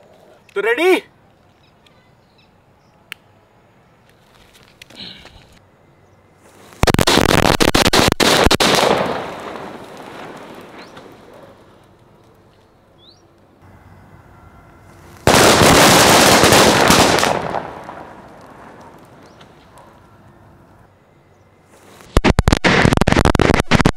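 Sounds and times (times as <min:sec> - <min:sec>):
firecrackers bursting: 0:06.4 - 0:12.5, 0:14.8 - 0:20.6, 0:21.6 - 0:23.9.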